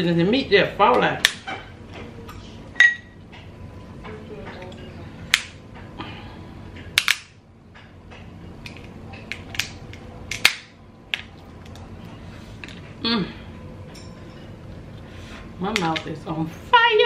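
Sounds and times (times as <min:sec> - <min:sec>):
crab shells cracking: 0:08.6 - 0:11.9.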